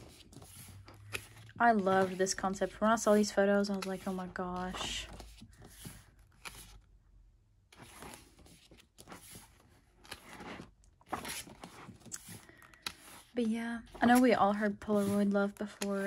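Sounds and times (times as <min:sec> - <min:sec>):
photo book pages turning: 0:00.0 - 0:07.0, 0:07.6 - 0:16.0.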